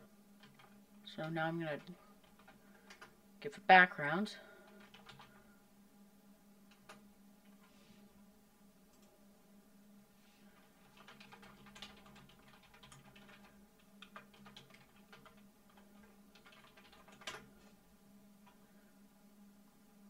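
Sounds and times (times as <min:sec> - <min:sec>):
keyboard typing: 0:00.4 - 0:03.2, 0:04.6 - 0:05.4, 0:06.7 - 0:07.7, 0:10.6 - 0:17.8.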